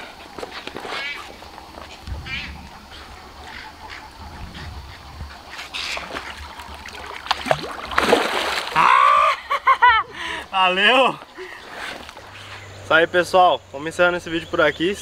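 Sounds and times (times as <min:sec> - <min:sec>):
croaking animal calls: 0:00.0 - 0:07.7, 0:08.6 - 0:12.8.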